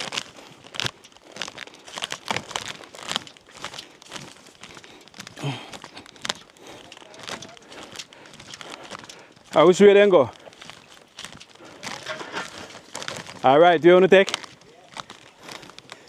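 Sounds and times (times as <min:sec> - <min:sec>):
footsteps crunching dry leaves: 0:00.0 - 0:16.0
person grunting: 0:05.4 - 0:05.8.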